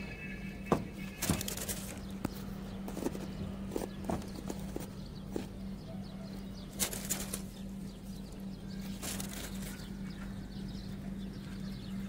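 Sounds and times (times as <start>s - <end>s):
birds flapping wings: 0.8s - 5.6s, 6.7s - 8.2s, 8.8s - 10.0s.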